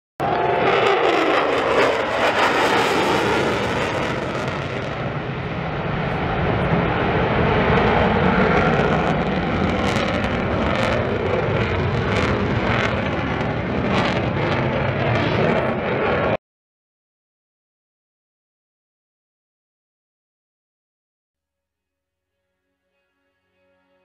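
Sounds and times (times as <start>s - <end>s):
fighter jet engine rumble: 0.2s - 16.4s.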